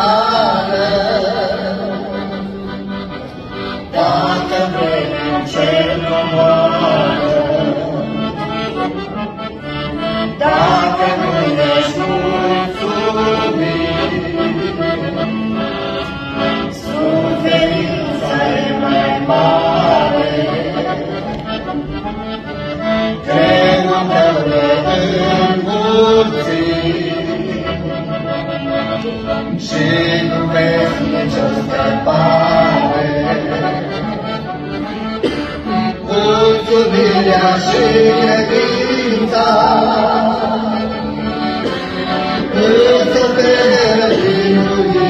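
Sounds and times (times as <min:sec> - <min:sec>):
instrumental accompaniment: 0:00.0 - 0:45.0
person singing a worship song: 0:42.6 - 0:45.0.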